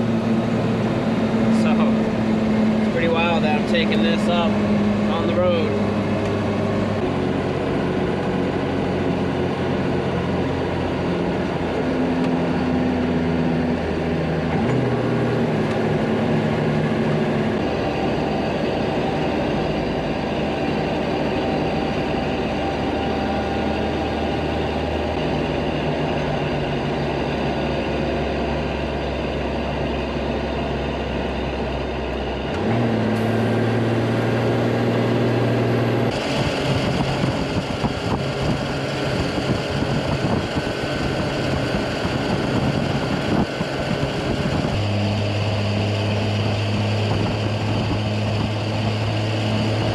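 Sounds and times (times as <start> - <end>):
truck diesel engine running: 0.0 - 49.9.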